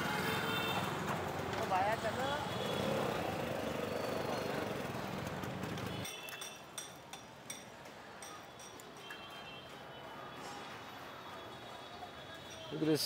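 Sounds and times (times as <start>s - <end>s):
traffic rumble: 0.0s - 6.1s
sharp clinks and taps: 6.0s - 9.2s.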